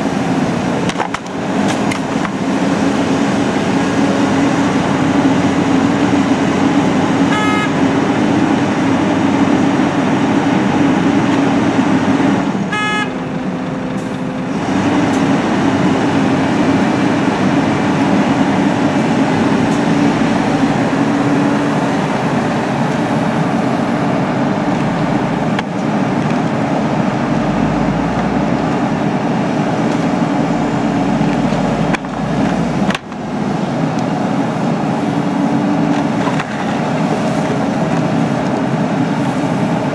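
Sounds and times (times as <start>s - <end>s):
excavator diesel engine and hydraulics: 0.0s - 39.9s
horn toots: 7.3s - 7.8s, 12.7s - 13.2s.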